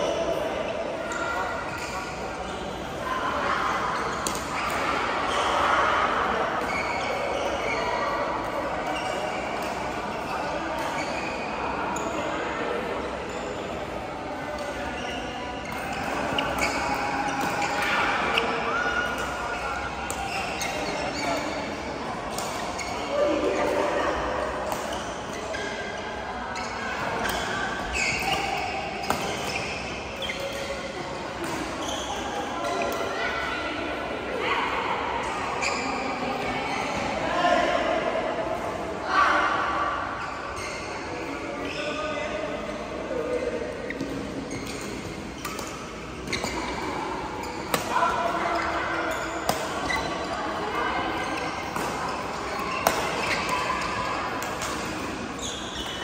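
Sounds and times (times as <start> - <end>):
sneakers squeaking on court: 6.6 - 12.1, 14.4 - 23.3, 26.6 - 33.1, 36.7 - 37.0, 43.2 - 56.0
racket hitting shuttlecock: 47.5 - 50.2, 51.3 - 55.2
racket striking shuttlecock: 47.7 - 47.9.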